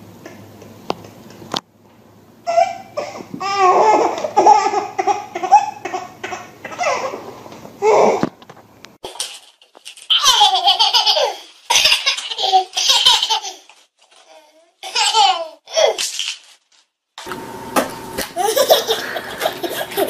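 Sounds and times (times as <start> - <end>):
toddler giggling: 2.5 - 8.2, 18.4 - 20.0.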